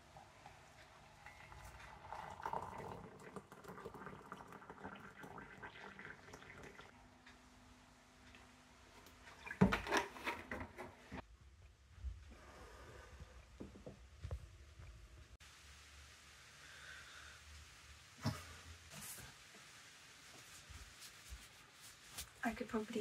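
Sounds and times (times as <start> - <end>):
milk pouring: 0.2 - 6.9
hot water pouring into mug: 0.4 - 6.9.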